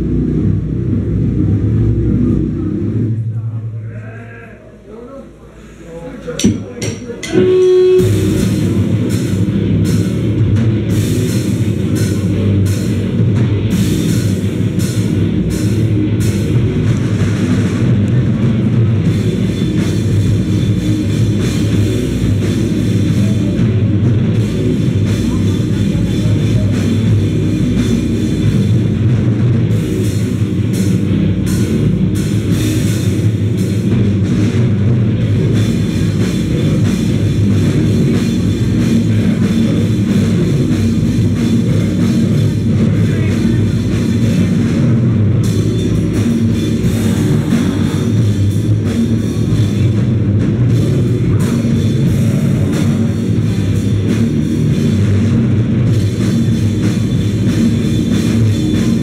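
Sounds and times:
cymbals crashing: 6.2s - 10.2s
live heavy rock band: 7.2s - 59.0s.

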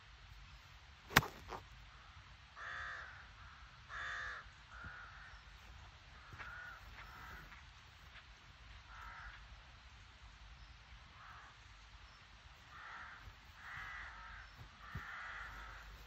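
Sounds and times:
golf club striking ball: 1.1s - 1.6s
crows cawing: 2.6s - 5.4s, 6.1s - 7.6s, 8.9s - 9.4s, 11.2s - 11.6s, 12.7s - 16.0s.

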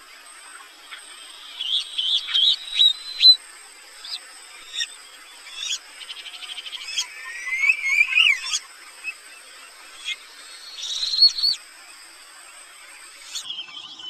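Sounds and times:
bird chirps: 0.9s - 3.4s, 4.0s - 9.2s, 9.9s - 11.6s, 13.1s - 14.0s
rising whistled bird call: 1.6s - 3.4s, 6.9s - 8.6s, 10.0s - 11.6s.

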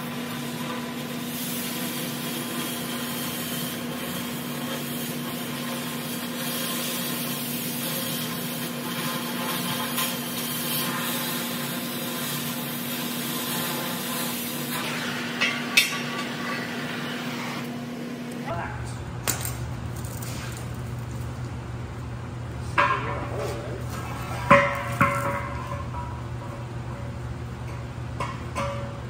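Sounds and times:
cutting torch hissing: 0.0s - 17.7s.

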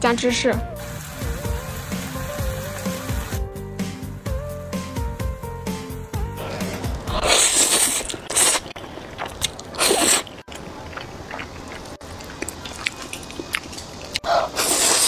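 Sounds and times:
noodle slurping: 6.4s - 15.0s
wet chewing clicks: 7.1s - 15.0s.

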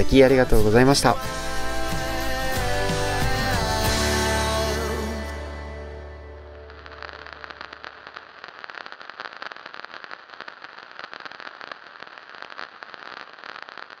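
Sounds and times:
low lingering tone: 3.8s - 8.0s
record surface crackling: 6.5s - 14.0s.

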